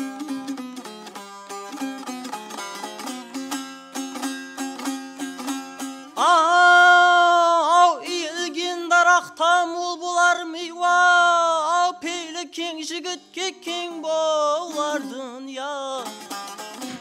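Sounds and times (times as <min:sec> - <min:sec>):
dutar strumming: 0:00.0 - 0:09.6, 0:13.2 - 0:17.0
man singing: 0:06.1 - 0:17.0.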